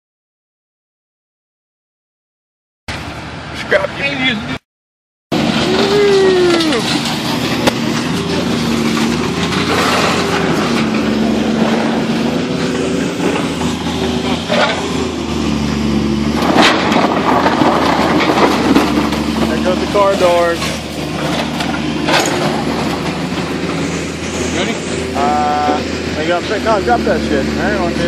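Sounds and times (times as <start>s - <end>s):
crane engine and hydraulics: 5.3s - 28.0s
scrap metal clanking: 5.5s - 15.4s, 16.3s - 27.8s.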